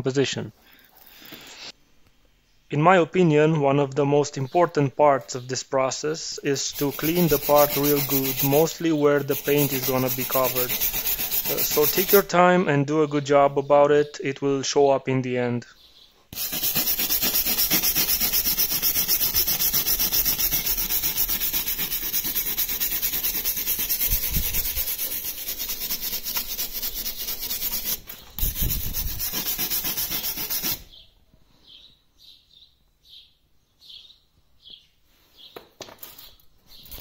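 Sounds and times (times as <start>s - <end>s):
abrasive sponge scrubbing metal: 6.5s - 12.4s, 16.4s - 30.9s.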